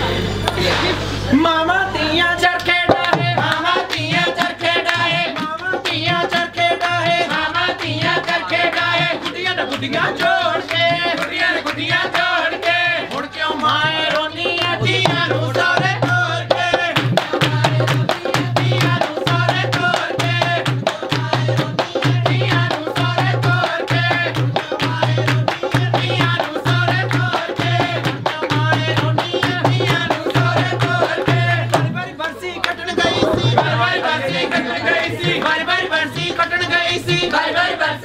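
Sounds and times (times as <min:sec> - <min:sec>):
women singing together: 0:00.0 - 0:38.0
hand clapping: 0:02.6 - 0:34.5
steady drum beat: 0:02.7 - 0:37.5.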